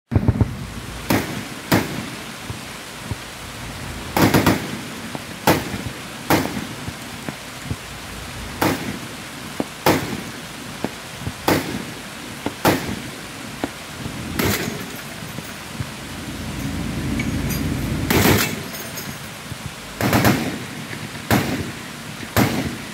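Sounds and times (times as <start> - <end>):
steady rain hiss: 0.1 - 22.9
heavy machine gun firing: 4.1 - 4.8, 14.3 - 15.0, 18.1 - 18.7, 20.0 - 20.7, 21.3 - 21.8, 22.4 - 22.8.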